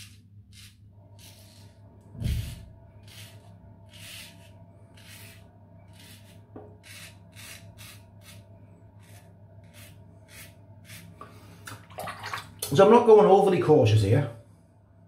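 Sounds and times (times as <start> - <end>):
razor scraping stubble: 0.0 - 1.7, 2.3 - 11.2
steady low hum: 0.0 - 15.0.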